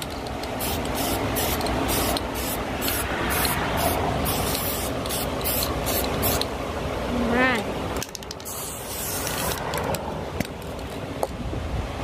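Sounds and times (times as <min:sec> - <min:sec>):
aerosol spray can hissing: 0:00.6 - 0:06.5, 0:08.4 - 0:09.6.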